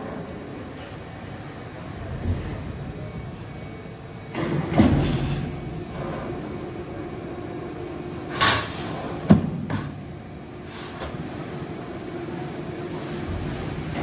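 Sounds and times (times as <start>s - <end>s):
machine hum: 0.0s - 14.0s.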